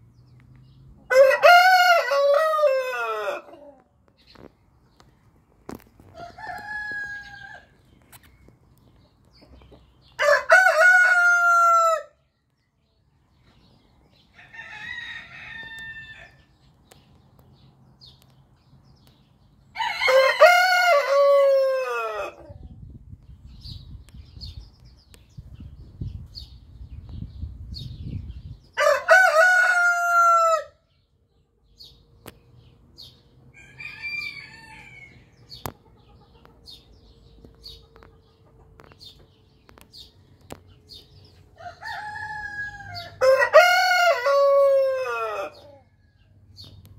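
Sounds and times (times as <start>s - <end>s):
roosters crowing: 1.0s - 3.9s, 5.7s - 8.0s, 10.0s - 12.2s, 14.2s - 16.6s, 19.7s - 22.6s, 28.8s - 30.9s, 33.5s - 36.1s, 40.9s - 46.4s.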